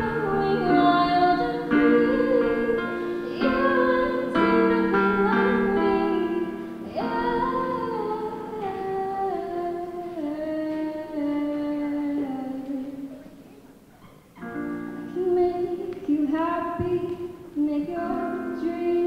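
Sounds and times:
electric piano chords and melody: 0.0s - 9.3s.

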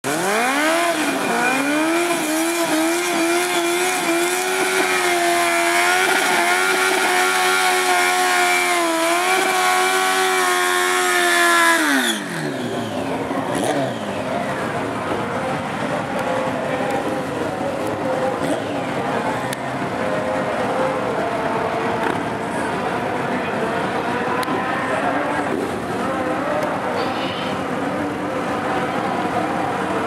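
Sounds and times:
motorcycle engine revving: 0.0s - 23.7s.

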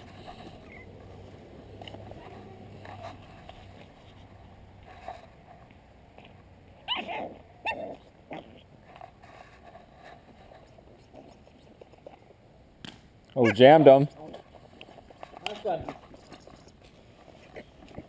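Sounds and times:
puppy barking: 6.8s - 8.0s.

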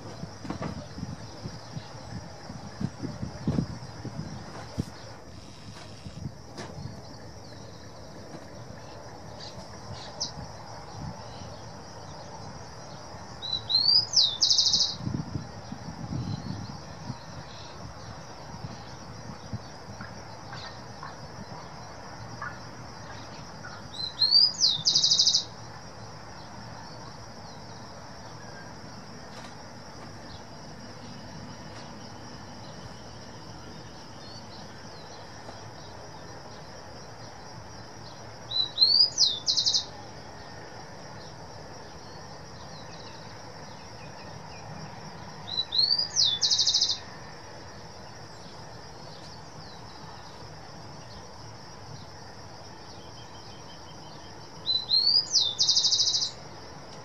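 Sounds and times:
distant train rumble: 0.0s - 14.2s
high insect buzz: 0.0s - 20.9s, 22.4s - 57.0s
songbird trilling: 13.4s - 15.1s, 23.2s - 25.6s, 38.5s - 39.9s, 45.5s - 47.1s, 53.1s - 56.4s.

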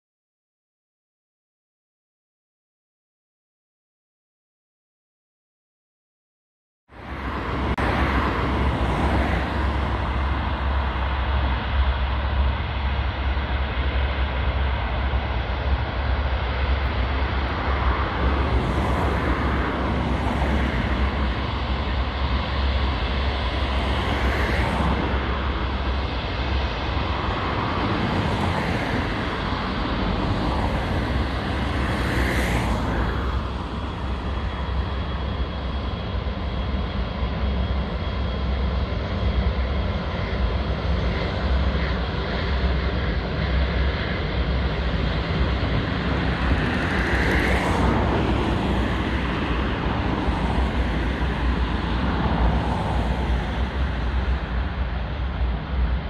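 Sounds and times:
jet engines rumbling: 6.9s - 56.0s.

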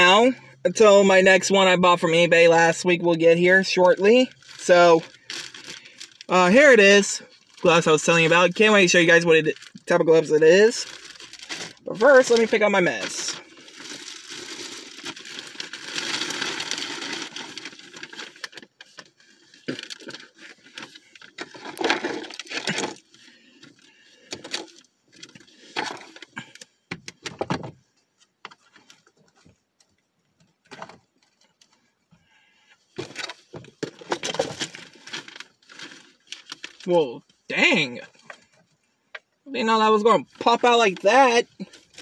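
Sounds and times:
packaging crinkling and rustling: 3.9s - 10.0s, 10.6s - 27.2s, 32.9s - 36.9s.

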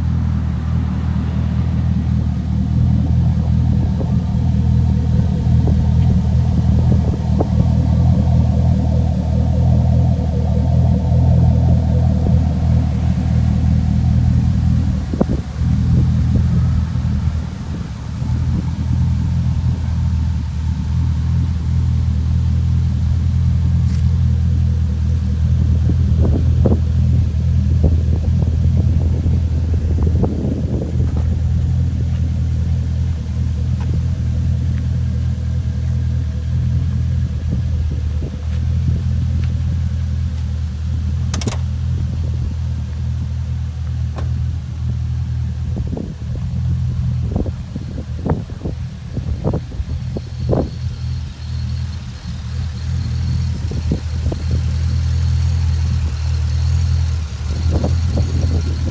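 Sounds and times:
car engine idling: 0.0s - 58.9s.

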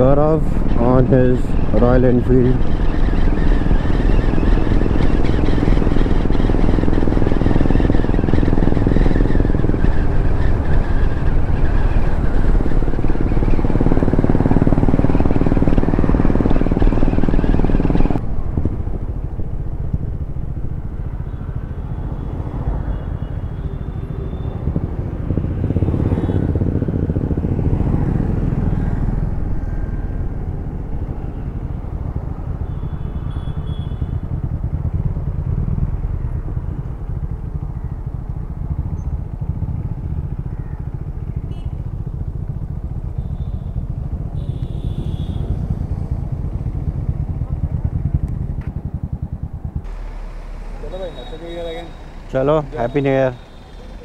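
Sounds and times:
wind rush: 0.0s - 23.0s
motorcycle engine running: 0.0s - 54.0s
road noise: 0.0s - 54.0s.

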